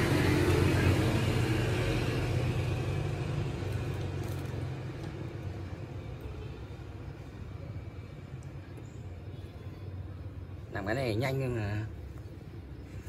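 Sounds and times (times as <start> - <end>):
passing vehicle engine hum: 0.0 - 5.9.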